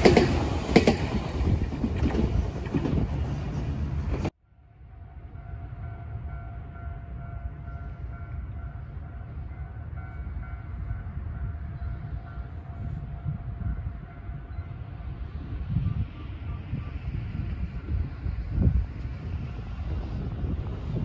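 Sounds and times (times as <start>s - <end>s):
distant level crossing bell: 4.9s - 15.0s.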